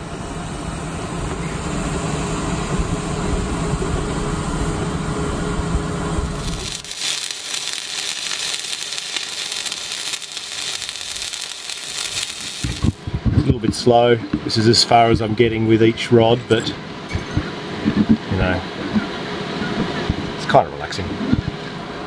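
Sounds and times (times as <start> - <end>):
welding arc crackling: 6.2 - 13.1.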